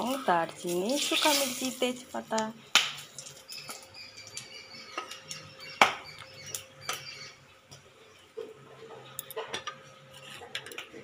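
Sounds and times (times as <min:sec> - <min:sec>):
spices sizzling in hot oil: 0:00.0 - 0:04.9.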